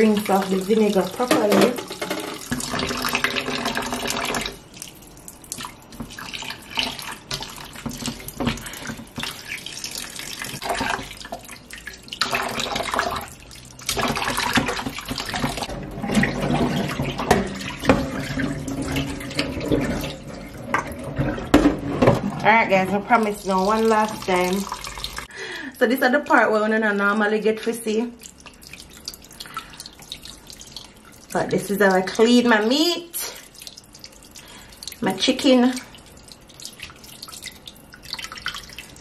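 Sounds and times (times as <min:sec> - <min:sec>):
tap water running into pot: 0:00.0 - 0:25.3.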